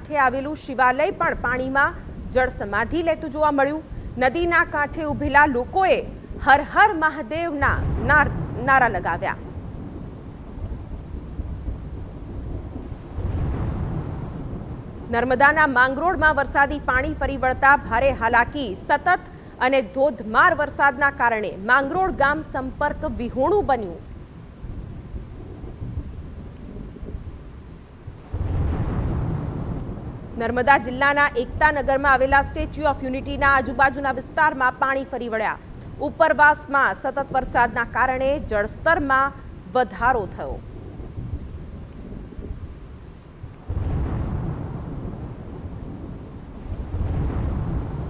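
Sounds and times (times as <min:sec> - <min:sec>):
rolling thunder: 0:00.0 - 0:18.8, 0:22.0 - 0:34.8, 0:40.3 - 0:48.0
rain: 0:00.0 - 0:48.0
thunderclap: 0:07.5 - 0:19.6, 0:22.8 - 0:34.8, 0:40.3 - 0:48.0.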